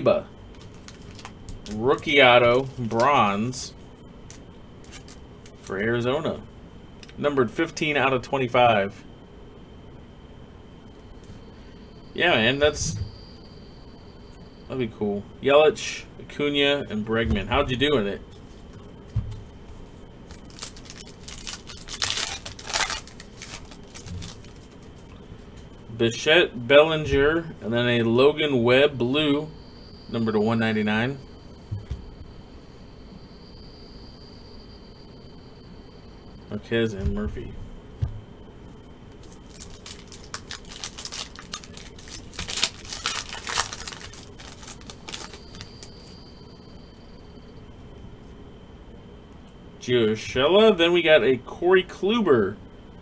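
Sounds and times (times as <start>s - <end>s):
foil wrapper tearing and crinkling: 0.5s - 3.1s, 20.3s - 24.9s, 39.2s - 46.1s.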